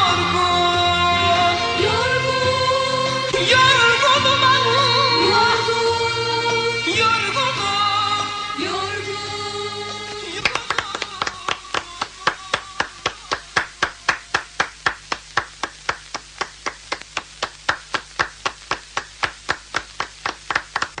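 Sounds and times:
audience clapping in unison: 0:00.0 - 0:01.6, 0:09.8 - 0:21.0.

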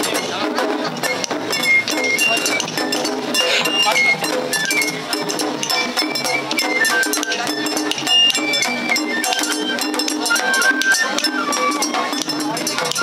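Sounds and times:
drum strokes: 0:00.0 - 0:13.0
high bamboo flute melody: 0:00.0 - 0:13.0
small hand gong clinking: 0:09.3 - 0:13.0.

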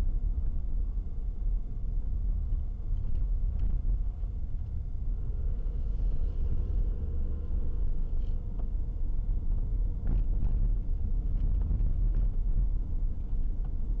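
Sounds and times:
car engine and road noise: 0:00.2 - 0:14.0.

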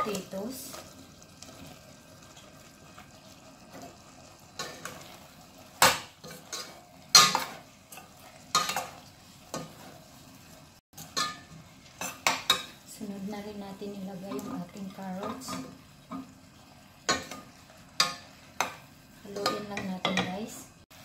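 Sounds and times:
faint frying sizzle: 0:00.0 - 0:21.0
metal spoon scraping a pot: 0:06.2 - 0:10.0.

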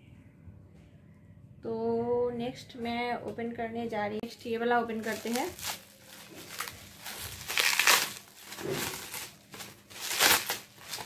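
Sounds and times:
bubble wrap crinkling: 0:04.9 - 0:11.0.

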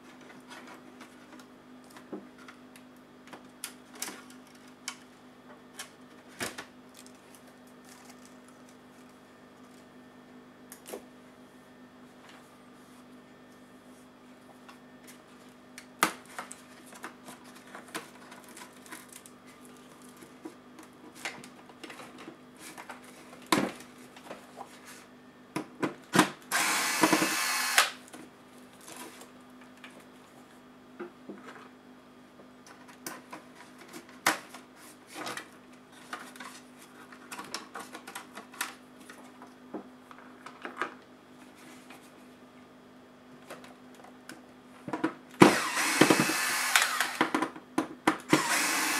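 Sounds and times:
electric screwdriver whirring: 0:26.5 - 0:28.0, 0:45.4 - 0:47.3, 0:48.3 - 0:48.9.

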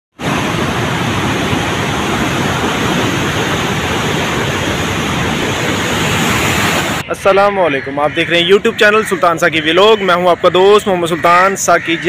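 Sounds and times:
river floodwater rushing: 0:00.2 - 0:07.0.

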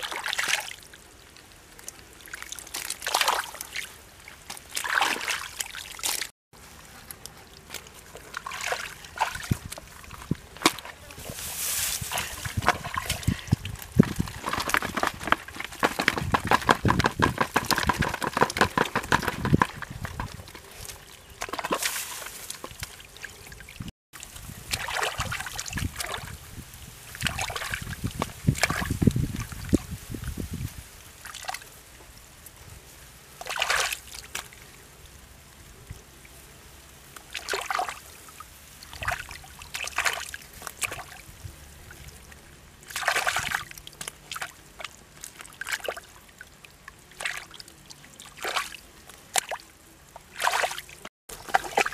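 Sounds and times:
hands splashing in muddy water: 0:02.3 - 0:06.3, 0:07.6 - 0:23.4, 0:24.7 - 0:26.4, 0:33.4 - 0:34.5, 0:38.8 - 0:41.2, 0:42.8 - 0:46.1, 0:47.0 - 0:49.6, 0:50.2 - 0:51.9
mud spilling into plastic bucket: 0:07.6 - 0:22.9.

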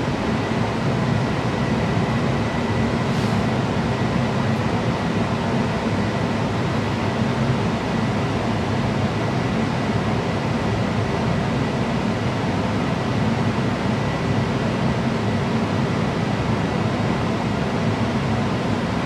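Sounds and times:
furnace fan rushing air: 0:00.0 - 0:10.3.

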